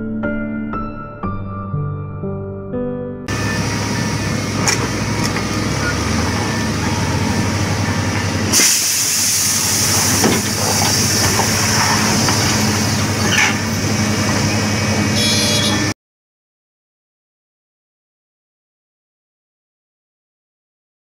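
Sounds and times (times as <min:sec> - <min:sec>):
heavy diesel engines running: 0:03.3 - 0:16.0
loud pressurized hiss: 0:08.5 - 0:13.3.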